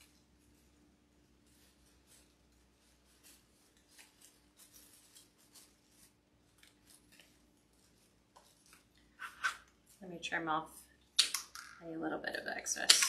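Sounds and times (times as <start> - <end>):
rustling of artificial flowers: 0.0 - 13.0.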